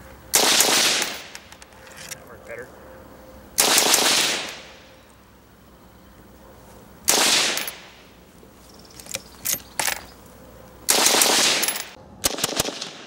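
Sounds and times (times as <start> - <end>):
machine gun bursts: 0.3 - 1.3, 3.6 - 4.6, 7.1 - 7.9, 10.9 - 13.0
sharp single gunshots: 0.3 - 1.3, 3.6 - 4.8, 7.1 - 8.0, 10.9 - 13.0.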